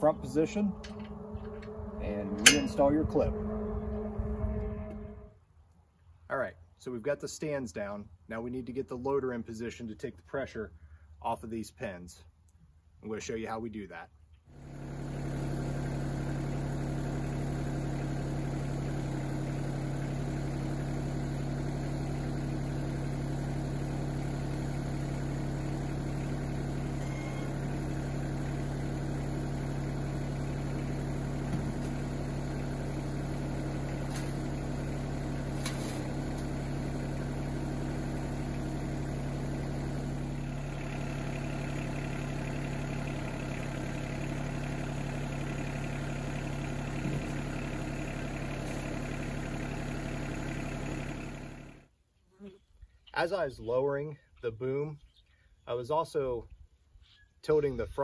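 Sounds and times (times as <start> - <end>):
diesel tractor engine idling: 0.0 - 5.3, 14.6 - 51.9.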